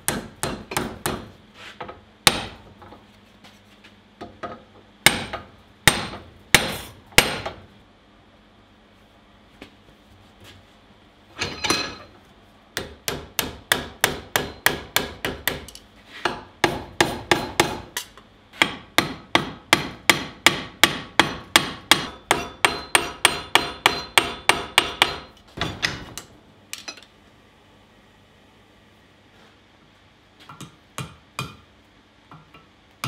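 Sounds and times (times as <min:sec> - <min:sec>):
hammer striking metal bar: 0:00.0 - 0:01.3, 0:02.3 - 0:02.6, 0:05.1 - 0:07.6, 0:11.4 - 0:12.1, 0:12.8 - 0:27.0, 0:30.5 - 0:31.6.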